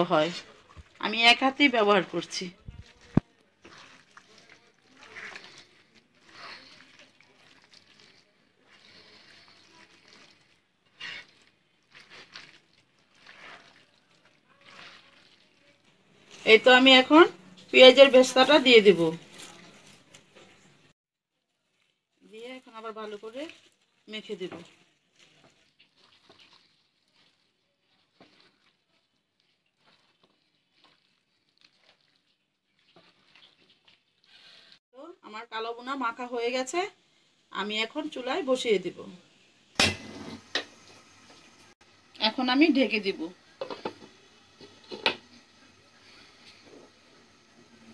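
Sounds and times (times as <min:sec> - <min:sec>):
wet squelching of kneading meat: 0:00.0 - 0:34.8.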